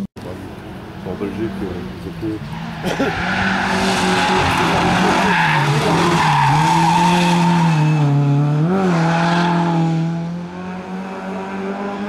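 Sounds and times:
tyres sliding on asphalt: 0:00.2 - 0:08.2
rally car engine revving: 0:00.2 - 0:12.0.

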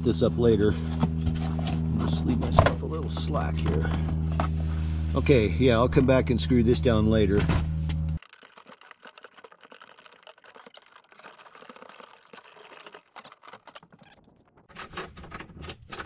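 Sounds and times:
cables rustling and clicking: 0:08.1 - 0:16.0.

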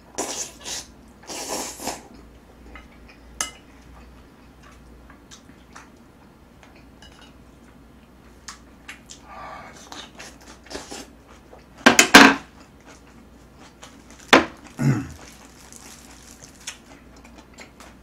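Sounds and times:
noodles slurping: 0:14.7 - 0:16.9.

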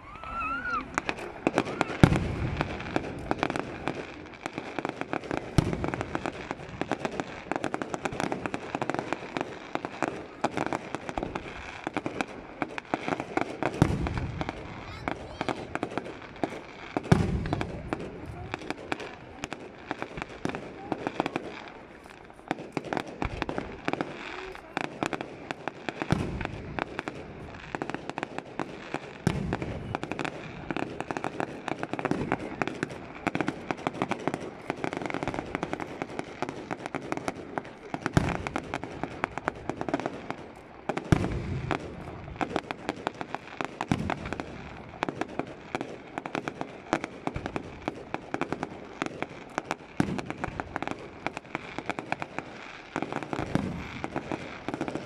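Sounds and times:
firework booms: 0:00.0 - 0:55.0
fireworks crackling and popping: 0:00.0 - 0:55.0.

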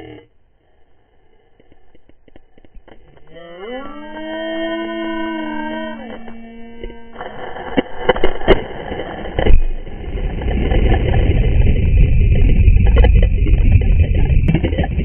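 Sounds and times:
underwater churning and bubbles: 0:06.8 - 0:15.0.

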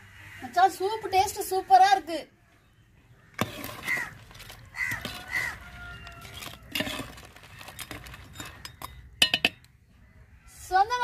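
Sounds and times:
crow cawing: 0:03.2 - 0:06.8.

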